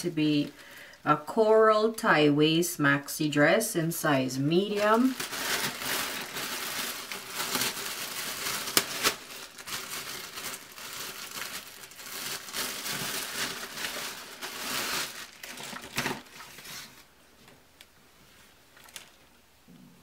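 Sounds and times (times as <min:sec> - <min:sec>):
plastic bag crinkling: 0:04.6 - 0:17.1, 0:18.7 - 0:19.3
sharp plastic crackle: 0:04.7 - 0:17.9, 0:18.7 - 0:19.3.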